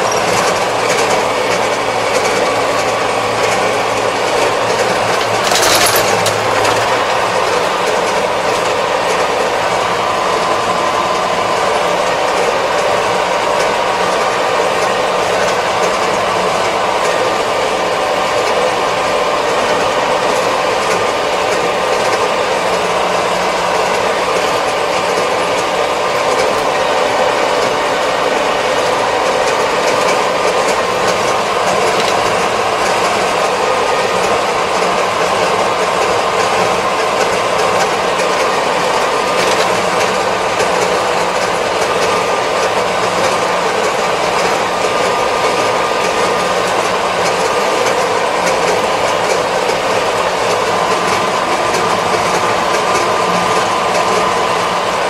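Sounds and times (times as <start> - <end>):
tractor engine humming: 0.0 - 55.0
rattle: 4.4 - 7.9.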